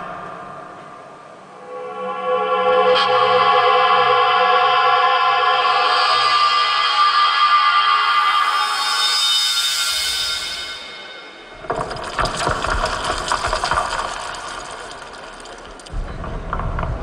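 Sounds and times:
dense crackling sound effect: 0:11.6 - 0:17.0.

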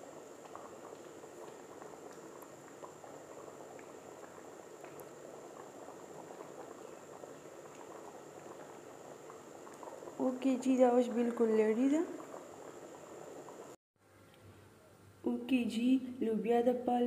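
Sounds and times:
curry bubbling and popping: 0:00.0 - 0:13.8.

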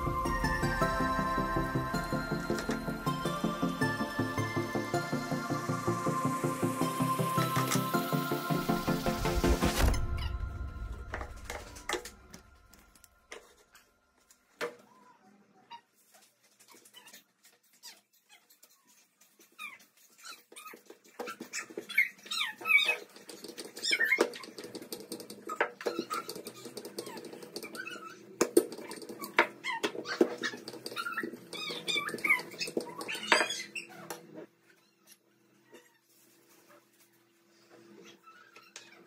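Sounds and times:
dog whining and whimpering: 0:28.8 - 0:34.1.

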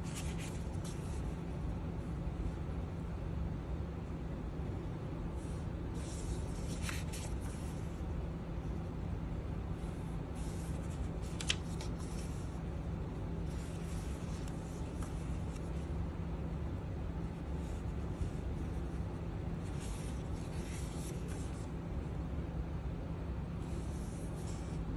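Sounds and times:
paper pages rustling: 0:00.0 - 0:01.4, 0:06.0 - 0:08.0, 0:10.3 - 0:12.7, 0:13.4 - 0:16.0, 0:19.6 - 0:21.7
steady low hum: 0:00.0 - 0:24.9
sharp paper snap: 0:11.2 - 0:12.0.

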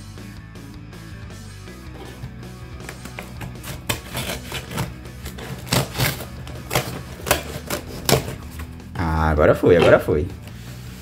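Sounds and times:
scissors cutting cardboard: 0:02.0 - 0:08.7.

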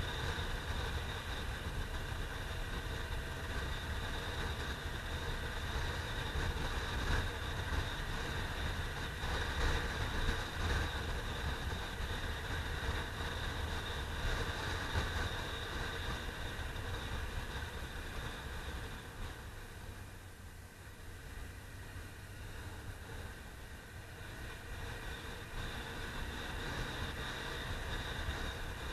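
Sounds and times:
motorcycle engine running: 0:00.0 - 0:28.9.

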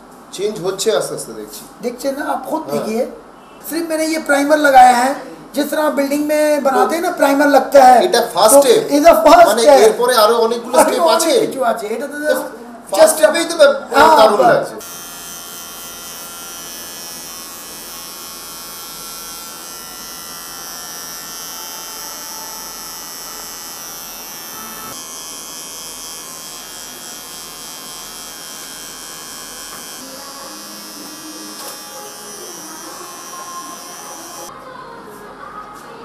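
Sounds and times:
electric beard trimmer buzzing: 0:14.8 - 0:34.5.

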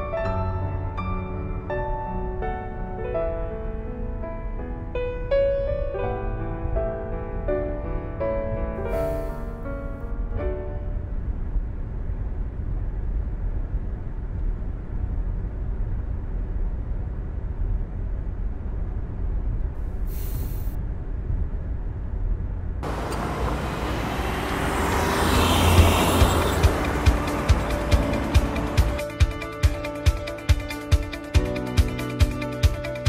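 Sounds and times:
road rumble inside moving car: 0:08.7 - 0:29.0
brief hiss: 0:08.8 - 0:09.6, 0:19.8 - 0:20.8
car driving past: 0:22.8 - 0:29.1.

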